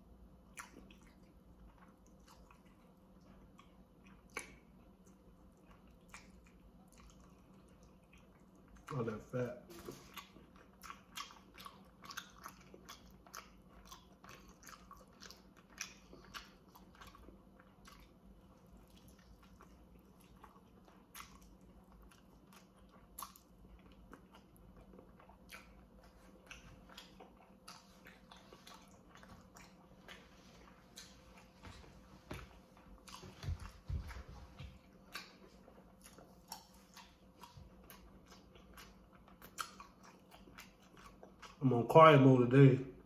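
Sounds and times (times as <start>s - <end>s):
chewing and biting meat: 0.0s - 41.8s
wet mouth clicks and smacks: 0.5s - 2.8s, 3.6s - 9.0s, 35.1s - 41.6s.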